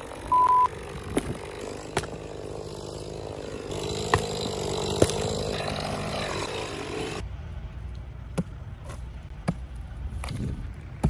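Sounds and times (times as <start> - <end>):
motor-like hum: 0.0 - 10.0
wood knocking and cracking: 5.0 - 5.3.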